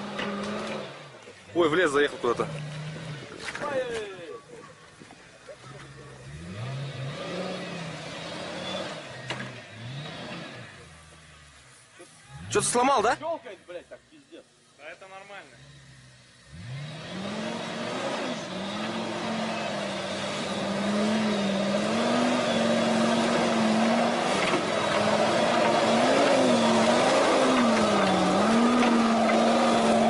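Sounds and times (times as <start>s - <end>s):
truck engine revving under load: 0.0s - 3.6s, 5.6s - 11.5s, 15.4s - 30.0s.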